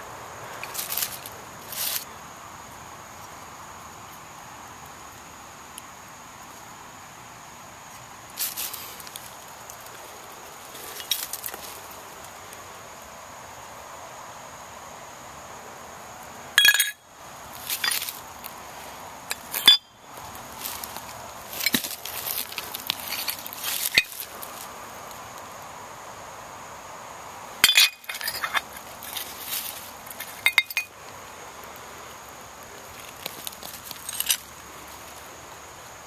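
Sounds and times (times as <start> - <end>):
broken ceramic and glass clinking: 16.6 - 17.0, 19.3 - 19.9, 27.6 - 28.7, 30.4 - 30.9.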